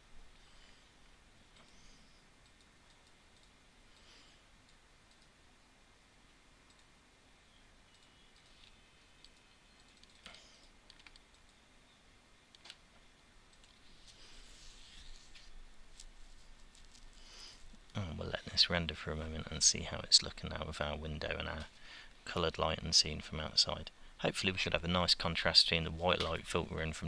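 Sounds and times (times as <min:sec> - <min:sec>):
faint room hiss: 0:00.0 - 0:27.0
soft keyboard clicks: 0:04.7 - 0:05.3, 0:07.9 - 0:11.6.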